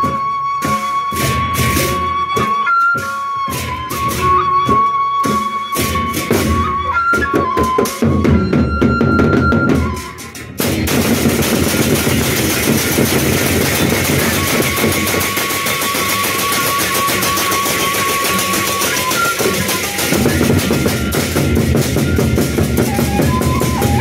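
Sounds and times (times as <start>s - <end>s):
wind instrument high melody: 0.0s - 24.0s
large drums beating: 3.4s - 24.0s
crash cymbals clattering: 10.3s - 24.0s.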